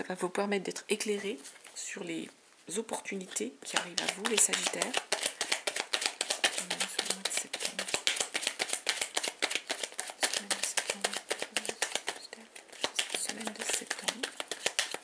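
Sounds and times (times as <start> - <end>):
cards being shuffled: 3.2 - 15.0.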